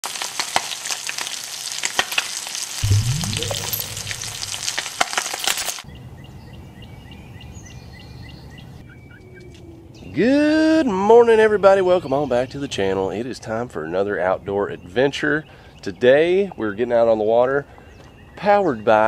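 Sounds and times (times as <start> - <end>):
meat sizzling in a frying pan: 0.0 - 2.8
rising tone sweep: 2.8 - 5.0.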